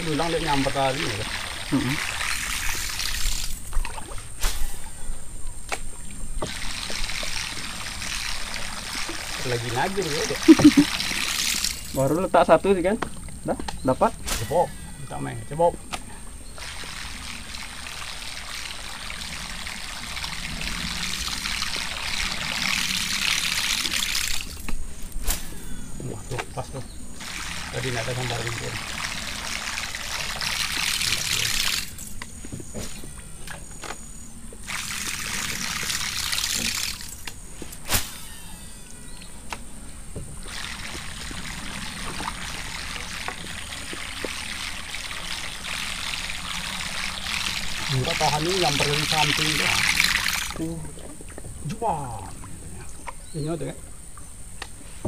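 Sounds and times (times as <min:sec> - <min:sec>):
water splashing along canoe hull: 0:00.1 - 0:04.9, 0:05.7 - 0:12.0, 0:27.2 - 0:37.9, 0:40.1 - 0:53.3.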